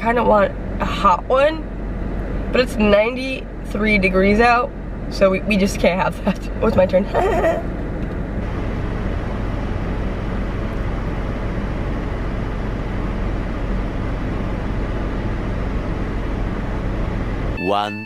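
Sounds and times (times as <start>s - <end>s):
car idling hum: 0.0s - 18.0s.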